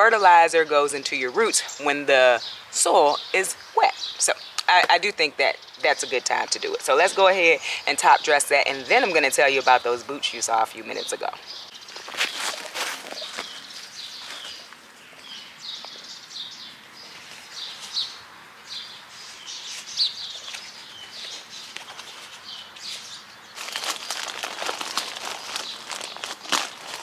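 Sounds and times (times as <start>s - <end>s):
small birds chirping: 0.0s - 27.0s
rustling and scraping: 11.9s - 15.3s, 17.0s - 18.2s, 19.1s - 27.0s.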